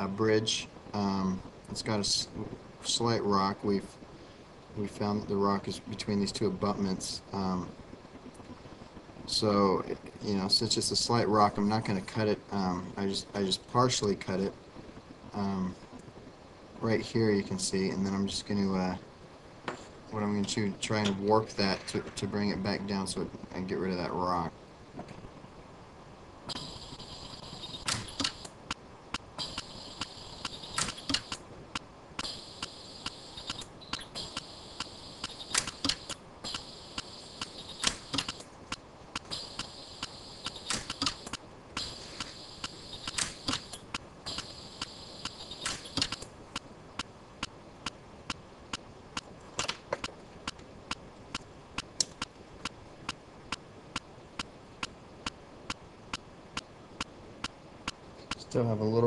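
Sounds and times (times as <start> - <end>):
high whine: 26.4 - 49.3
welder snapping pulses: 26.5 - 58.5.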